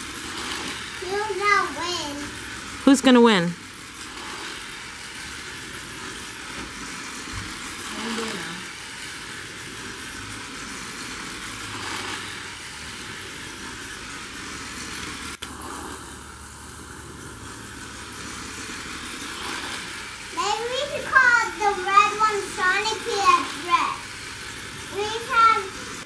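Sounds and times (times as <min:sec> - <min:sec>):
toy race cars motor whir: 0:00.0 - 0:26.0
child's vocal sound: 0:07.9 - 0:08.7.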